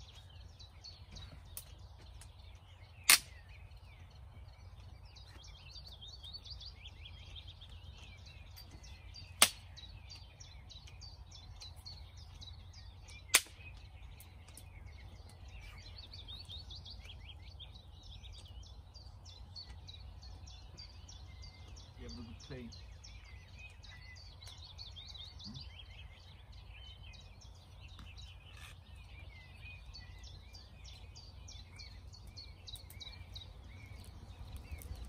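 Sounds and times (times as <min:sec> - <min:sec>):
birdsong chirping: 0:00.0 - 0:35.0
wood fire popping sharply: 0:00.1 - 0:18.7, 0:27.2 - 0:35.0.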